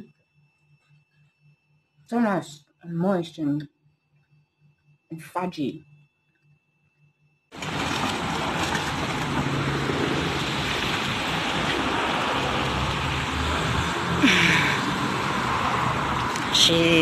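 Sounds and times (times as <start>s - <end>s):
road traffic: 7.6s - 17.0s.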